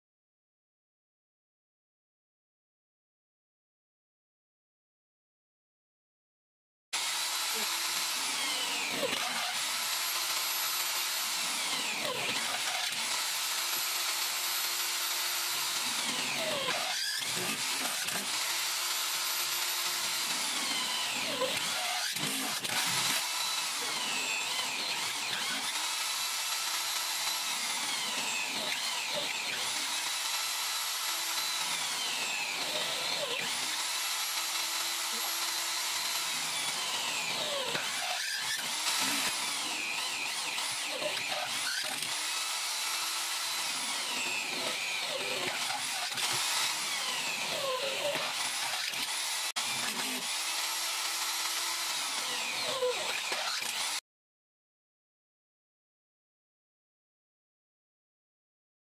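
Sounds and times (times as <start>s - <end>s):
power drill cutting metal sheet: 7.0s - 54.0s.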